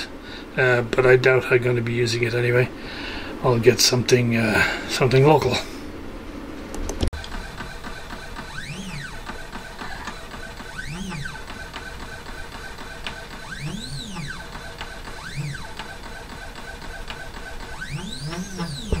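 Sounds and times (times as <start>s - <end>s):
steady high tone: 7.2s - 19.0s
stepper motors whining in sweeps: 7.2s - 19.0s.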